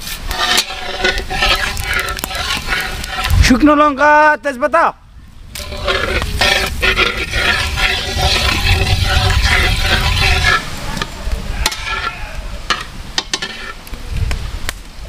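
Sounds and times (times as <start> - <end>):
spices sizzling in hot oil: 0.0 - 3.5, 5.6 - 10.9
spatula scraping a pan: 0.0 - 3.7, 5.5 - 13.8.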